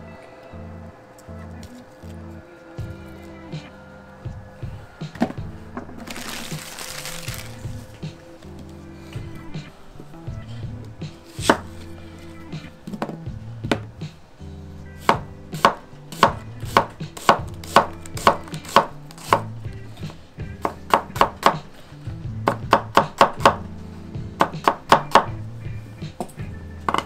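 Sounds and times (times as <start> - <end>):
soft background music: 0.0 - 27.0.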